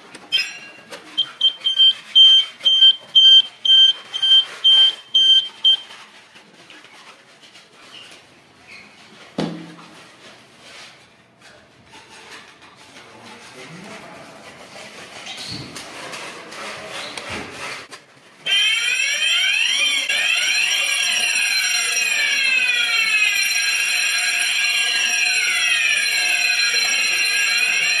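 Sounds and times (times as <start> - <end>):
steady high alarm ringing: 0.3 - 6.0, 18.4 - 28.0
electronic sirens whooping: 18.5 - 28.0.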